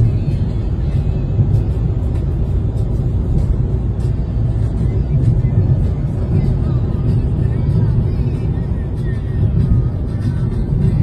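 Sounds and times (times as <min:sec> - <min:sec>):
car engine and tyre rumble: 0:00.0 - 0:11.0.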